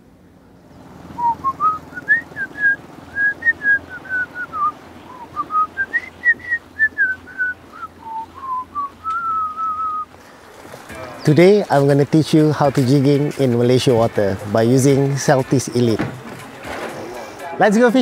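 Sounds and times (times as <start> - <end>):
person whistling a tune: 1.2 - 10.1.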